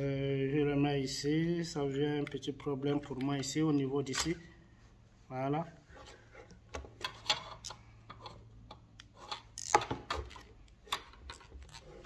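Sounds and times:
wires and plastic parts clicking: 6.6s - 12.0s.

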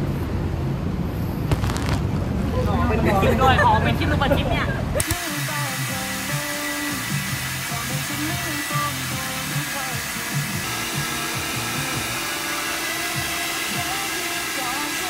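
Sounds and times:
background pop music: 5.0s - 15.0s
hair dryer blowing: 5.0s - 15.0s.

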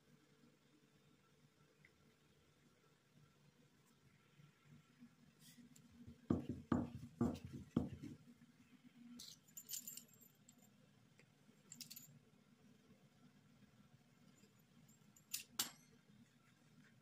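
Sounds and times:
rolling pin thudding on worktop: 6.3s - 8.2s.

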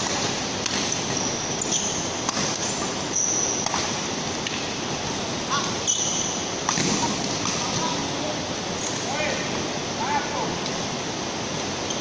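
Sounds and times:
racket hitting shuttlecock: 0.0s - 1.2s, 1.8s - 2.8s, 3.6s - 4.6s, 6.7s - 8.0s
court shoes squeaking: 0.0s - 4.6s, 5.5s - 8.2s.

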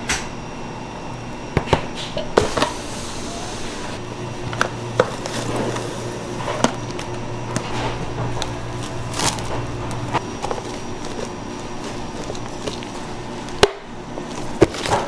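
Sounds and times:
steady low hum: 0.0s - 15.0s
cling wrap crinkling: 5.0s - 13.6s.

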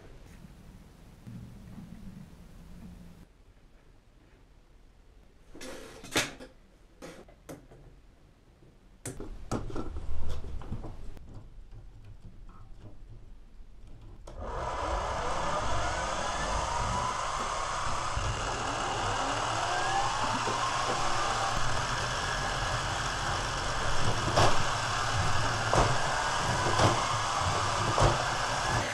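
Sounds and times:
toy motors whirring: 14.4s - 28.9s.

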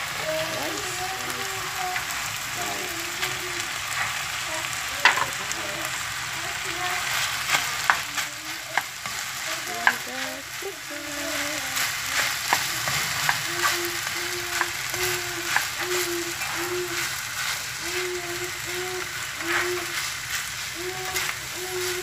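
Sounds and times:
food sizzling in a frying pan: 0.0s - 22.0s
spatula scraping a pan: 6.6s - 22.0s.

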